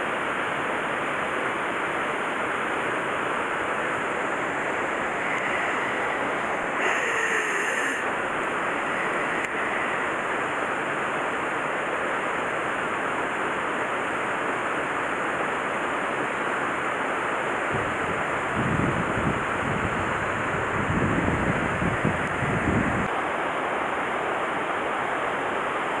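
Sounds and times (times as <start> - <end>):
water rushing in channel: 0.0 - 26.0
wind buffeting microphone: 17.7 - 23.1.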